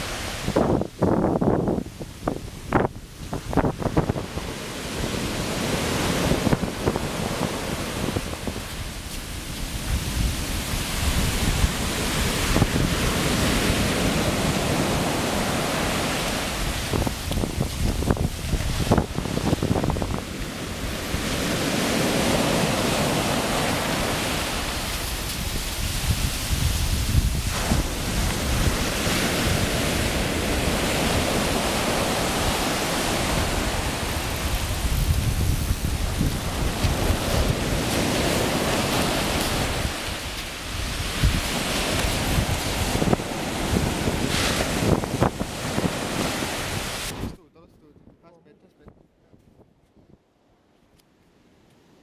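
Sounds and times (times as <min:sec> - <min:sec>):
surf breaking on beach: 0:00.0 - 0:47.4
wind buffeting microphone: 0:00.0 - 0:50.3.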